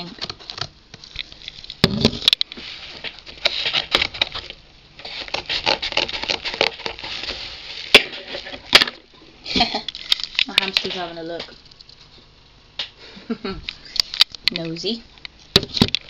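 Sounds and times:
cardboard crackling: 2.8s - 9.0s
scissors cutting cardboard: 5.0s - 7.4s.

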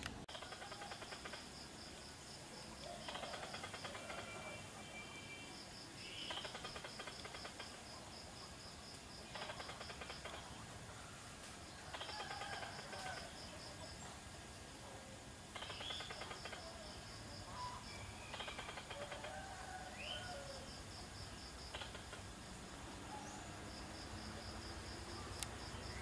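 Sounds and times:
rapid clicking chatter: 0.3s - 1.5s, 2.9s - 4.4s, 6.3s - 7.8s, 9.3s - 10.5s, 11.9s - 13.3s, 15.5s - 16.6s, 18.3s - 19.3s, 21.7s - 22.3s
pulsing insect trill: 0.3s - 10.6s, 11.6s - 14.0s, 15.4s - 26.0s
birds chirping: 2.8s - 8.1s, 8.9s - 14.2s, 15.3s - 22.3s.

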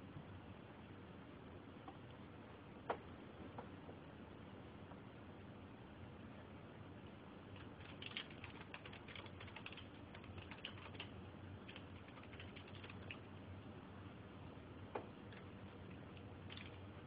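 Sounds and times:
low steady hum: 0.0s - 17.0s
typing on computer keyboard: 7.6s - 13.3s, 16.2s - 16.8s.

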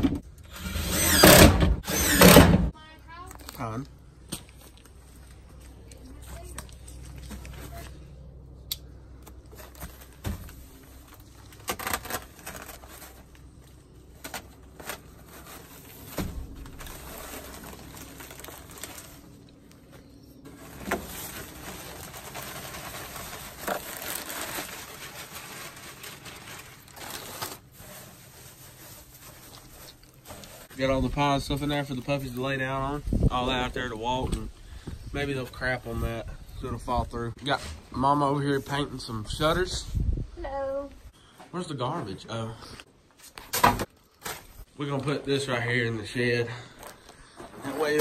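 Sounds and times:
wood shavings rustling and crackling: 9.5s - 32.6s.

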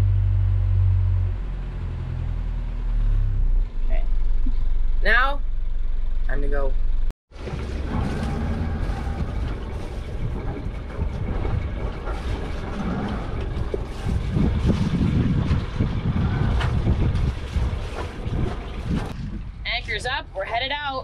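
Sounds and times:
boat diesel engine rumbling: 0.0s - 21.0s
wind buffeting microphone: 7.4s - 21.0s.

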